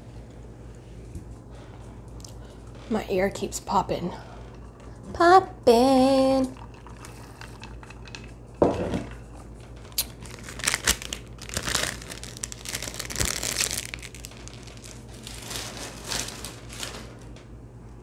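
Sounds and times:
wrapper crinkling: 9.1 - 17.4.

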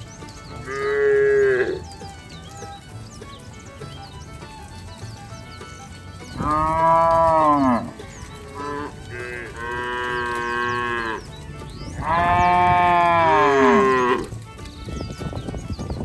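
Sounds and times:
cattle mooing: 0.6 - 1.8, 6.4 - 11.3, 12.0 - 14.4.

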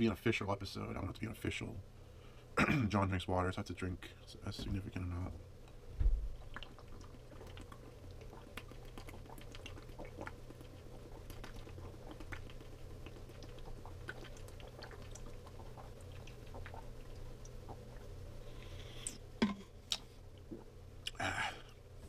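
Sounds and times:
man gulping water: 6.0 - 18.1, 19.0 - 21.9.

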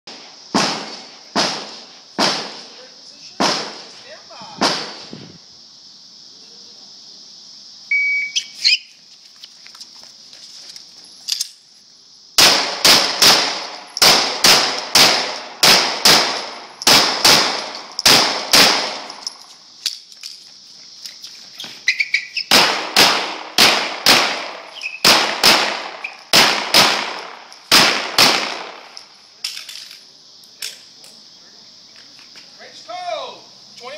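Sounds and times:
insects buzzing: 0.1 - 33.9
handgun shots: 12.4 - 19.2.

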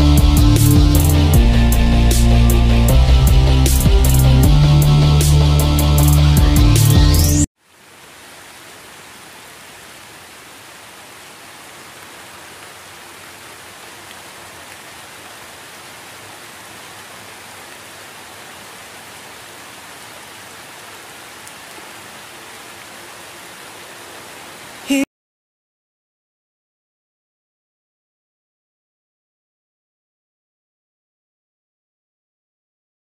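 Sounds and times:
steady rain falling: 7.5 - 25.1.

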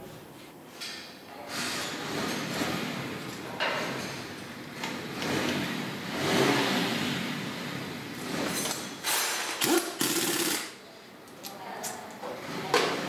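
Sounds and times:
pneumatic tool running in spurts: 8.3 - 10.8.

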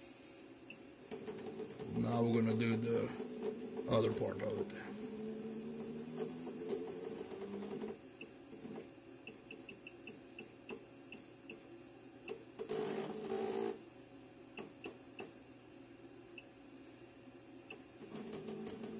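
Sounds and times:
machine whirring: 0.7 - 11.6.

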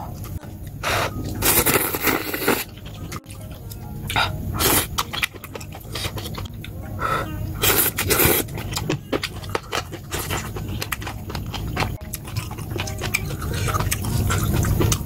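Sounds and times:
person slurping noodles: 0.8 - 2.7, 7.6 - 8.5.

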